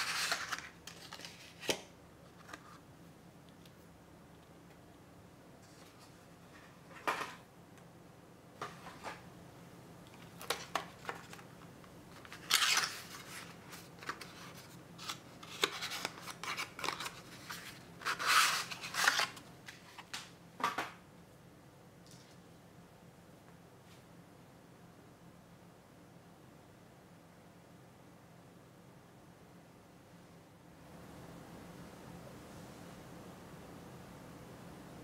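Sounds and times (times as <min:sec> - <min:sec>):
paper packaging rustling: 0:00.0 - 0:02.8, 0:10.1 - 0:20.3.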